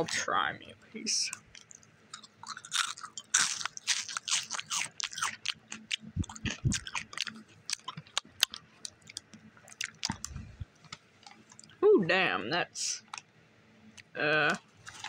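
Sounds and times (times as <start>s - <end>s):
crunchy chips being chewed: 1.3s - 11.8s, 14.8s - 15.0s.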